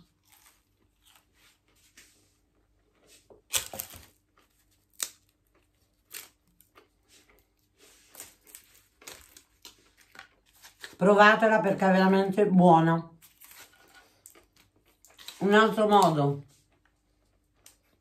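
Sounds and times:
crisp flatbread snapping: 3.4s - 6.9s, 8.1s - 11.0s.

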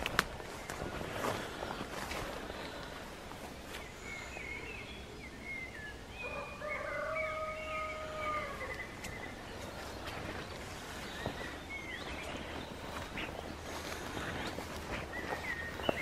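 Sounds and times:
bird chirps and calls: 3.7s - 16.0s.

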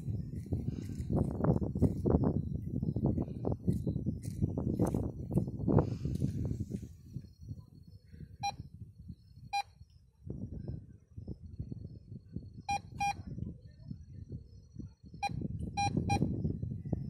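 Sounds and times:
metal detector beeps: 8.4s - 8.6s, 9.5s - 9.8s, 12.7s - 13.2s, 15.2s - 16.3s.

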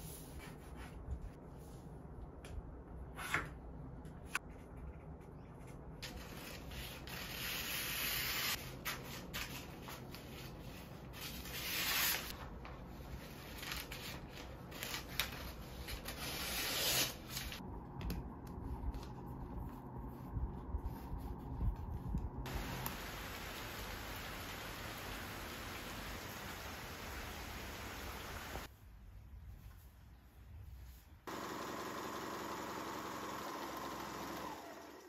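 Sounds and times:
paper rubbing and rustling: 5.6s - 17.6s.

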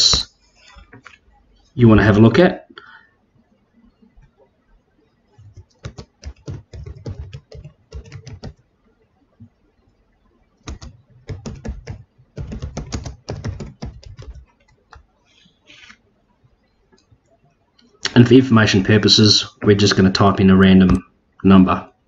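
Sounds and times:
keyboard typing: 5.3s - 8.7s, 10.6s - 16.0s.

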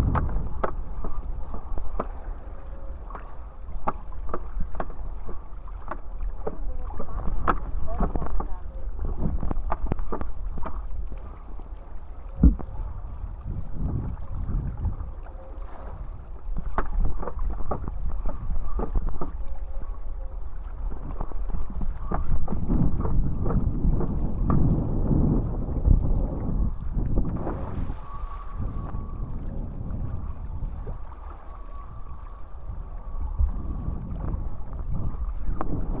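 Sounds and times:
small slaps on water: 0.0s - 2.2s, 3.1s - 8.5s, 9.4s - 11.2s, 16.6s - 19.4s
water rushing and splashing: 0.0s - 36.0s
wind buffeting microphone: 0.0s - 36.0s.

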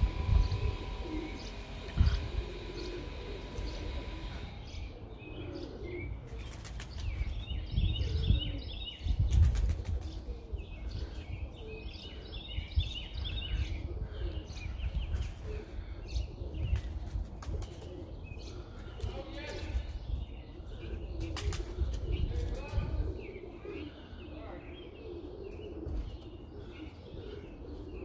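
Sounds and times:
low rumble: 0.0s - 5.4s
birds twittering: 0.0s - 28.0s
wings flapping: 6.3s - 7.4s, 9.3s - 10.3s, 16.7s - 18.0s, 21.2s - 22.9s.

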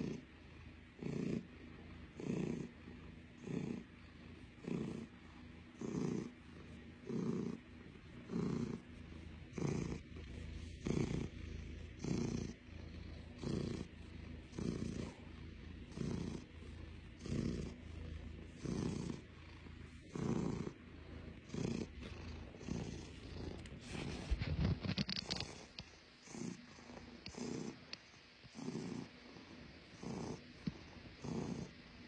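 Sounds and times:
cat purring: 0.0s - 32.0s.

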